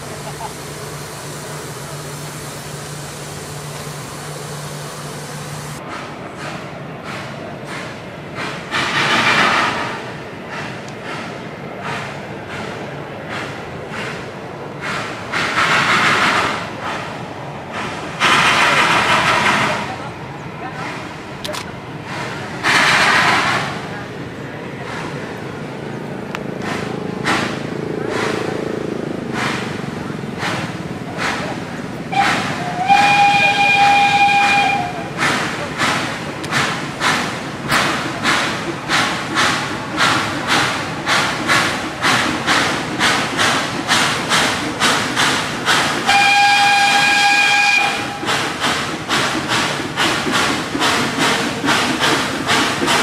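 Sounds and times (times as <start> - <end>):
locomotive exhaust chuffs: 0.0 - 6.5, 26.4 - 53.0
steam locomotive hum and hiss: 0.0 - 53.0
steam rush: 0.0 - 53.0.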